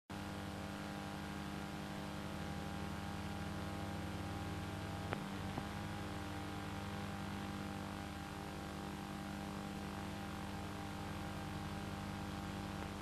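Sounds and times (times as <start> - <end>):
electrical hum and hiss: 0.1 - 13.0.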